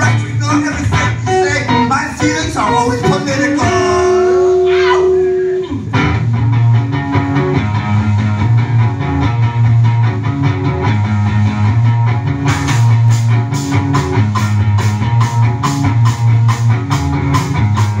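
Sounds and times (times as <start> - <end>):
electric guitar playing: 0.0 - 18.0
repeating low bass: 5.7 - 18.0
drums with crisp cymbal strokes: 12.5 - 18.0.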